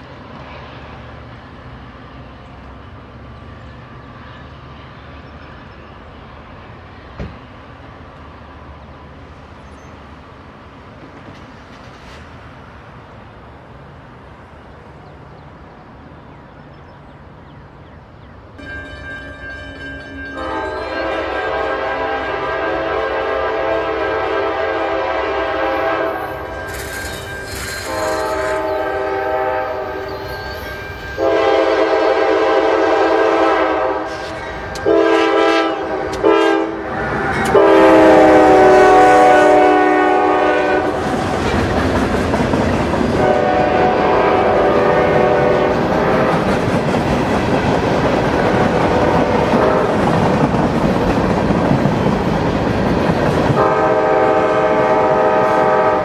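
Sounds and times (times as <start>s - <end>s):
train wheels clattering on rails: 7.1s - 7.6s, 10.9s - 12.6s, 34.0s - 36.4s, 37.0s - 37.8s, 40.8s - 54.3s
locomotive air horn blasts: 20.4s - 26.8s, 27.8s - 41.0s, 43.2s - 46.5s, 49.2s - 50.0s, 53.6s - 56.0s.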